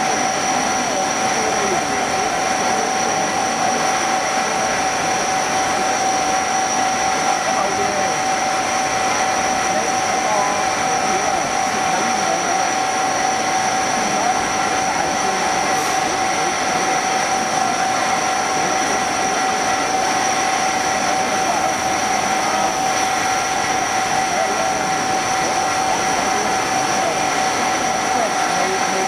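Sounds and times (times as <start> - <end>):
milling machine high whine: 0.0 - 29.0
coolant spray hiss: 13.9 - 29.0.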